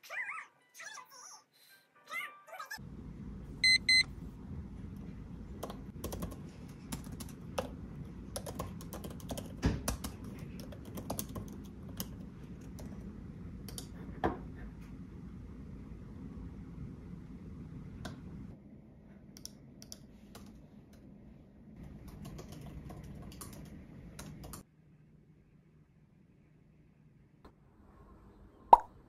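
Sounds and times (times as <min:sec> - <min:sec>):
low room hum: 0:02.8 - 0:29.0
short electronic beeps: 0:03.6 - 0:04.1.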